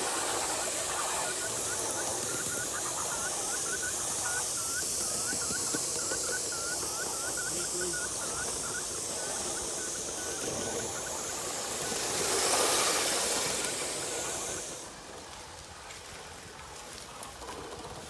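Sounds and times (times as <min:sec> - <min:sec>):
steam hissing: 0:00.0 - 0:18.0.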